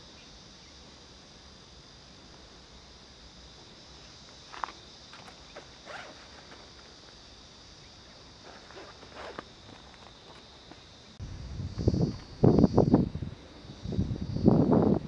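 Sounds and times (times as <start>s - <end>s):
insects chorus: 0.0s - 15.0s
crunching scuffs: 4.2s - 7.2s, 8.4s - 11.1s.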